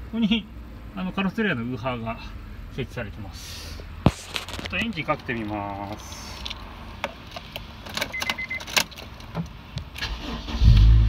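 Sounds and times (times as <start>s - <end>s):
car engine starting: 0.9s - 11.0s
electronic beeps: 8.1s - 8.7s
car starter cranking: 9.9s - 11.0s.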